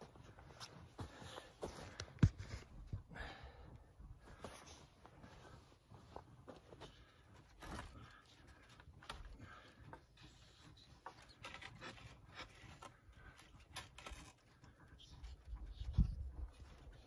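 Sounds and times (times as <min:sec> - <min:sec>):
soft clicks scrapes and rustles: 0:04.4 - 0:17.0.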